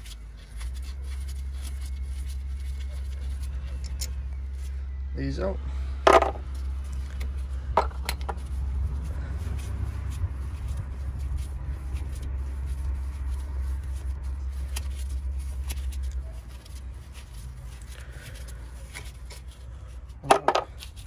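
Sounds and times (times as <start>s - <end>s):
motor vehicle rumble: 0.0s - 21.0s
metal parts clicking: 3.8s - 4.2s.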